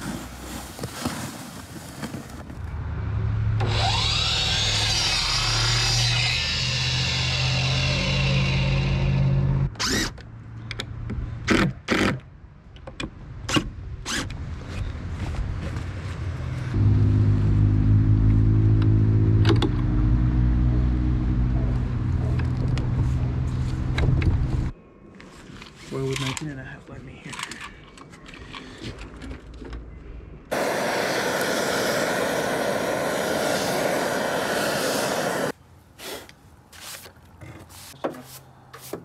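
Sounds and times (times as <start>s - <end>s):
miter saw cutting wood: 3.6s - 10.1s, 30.5s - 35.5s.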